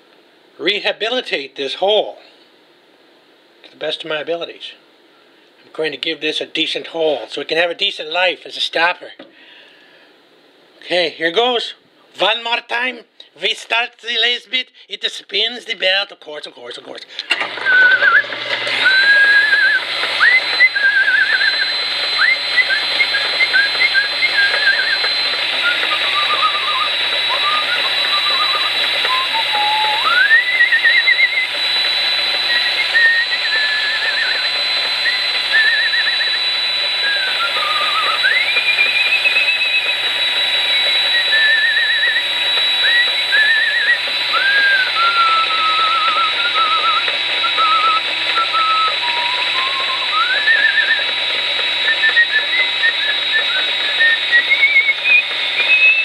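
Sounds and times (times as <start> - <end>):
rotary tool high whine: 17.2 - 56.0
person whistling a tune: 17.6 - 56.0.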